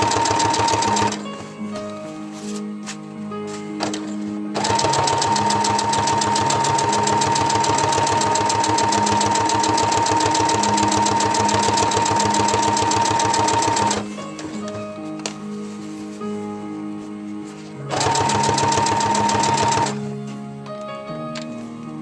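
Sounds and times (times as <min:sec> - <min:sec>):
sewing machine stitching: 0:00.0 - 0:01.2, 0:03.8 - 0:14.1, 0:17.9 - 0:20.0.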